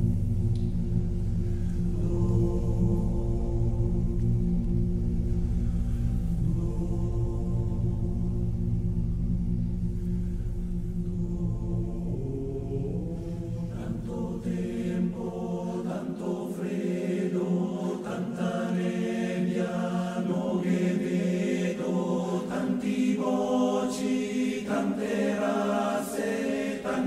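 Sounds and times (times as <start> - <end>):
low rumble: 0.0 - 15.8
choir singing sustained chords: 0.0 - 27.0.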